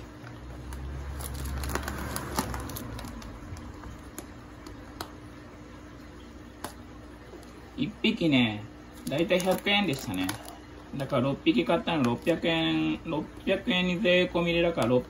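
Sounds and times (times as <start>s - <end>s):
plastic bag rustling: 0.6s - 4.6s, 8.9s - 11.1s.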